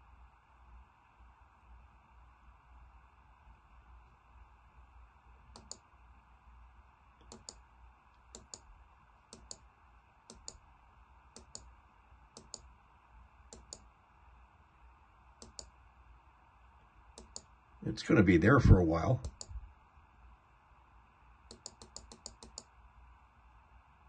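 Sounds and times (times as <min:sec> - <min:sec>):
faint low hum: 0:00.0 - 0:24.0
computer mouse button clicking: 0:05.5 - 0:05.8, 0:07.2 - 0:07.6, 0:08.3 - 0:08.6, 0:09.3 - 0:09.6, 0:10.3 - 0:10.6, 0:11.4 - 0:11.7, 0:12.4 - 0:12.7, 0:13.5 - 0:13.9, 0:15.4 - 0:15.7, 0:17.2 - 0:17.5, 0:19.2 - 0:19.5, 0:21.5 - 0:22.7.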